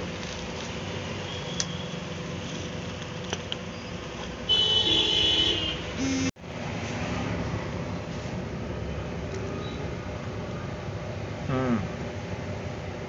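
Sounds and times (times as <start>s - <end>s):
street noise: 0.0s - 13.0s
thin hum: 6.0s - 6.3s.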